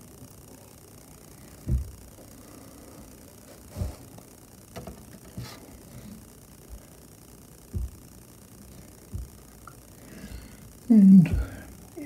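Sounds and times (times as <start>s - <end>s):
dull thuds: 1.6s - 2.1s, 7.7s - 8.1s, 9.1s - 9.5s.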